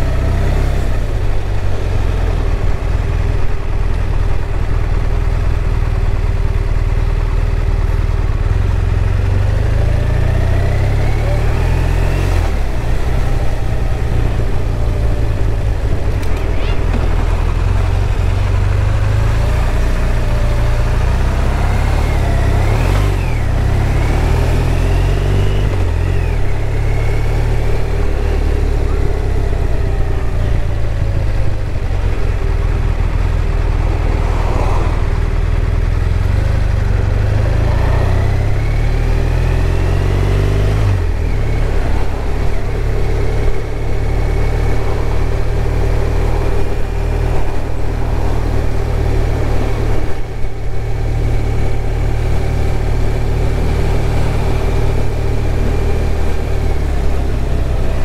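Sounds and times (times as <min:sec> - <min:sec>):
motorcycle engine running: 0:00.0 - 0:58.0
low wind rumble: 0:11.7 - 0:20.3, 0:29.4 - 0:39.7, 0:40.7 - 0:58.0.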